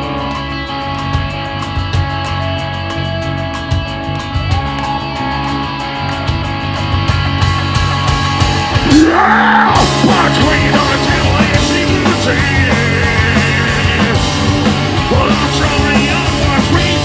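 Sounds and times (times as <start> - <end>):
live metal band playing: 0.0 - 17.0
vocalist yelling and singing: 8.8 - 14.4, 15.0 - 17.0.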